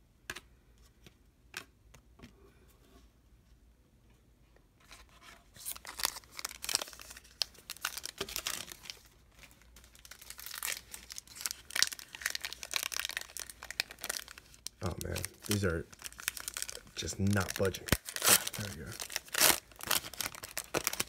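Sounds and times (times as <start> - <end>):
wrapper crinkling and tearing: 5.6 - 21.0.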